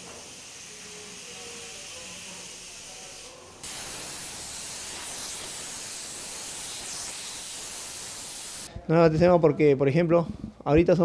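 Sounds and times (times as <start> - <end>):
paint spray gun hissing: 0.0 - 8.7.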